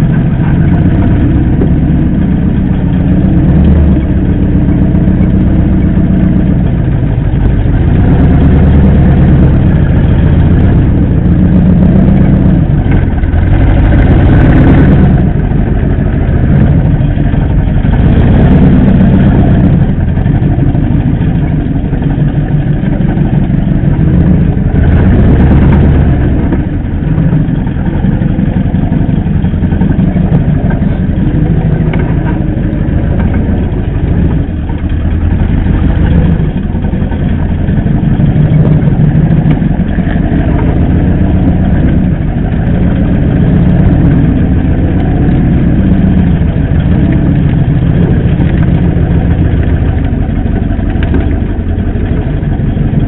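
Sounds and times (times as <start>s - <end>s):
engine rumbling at low revs: 0.0s - 53.0s.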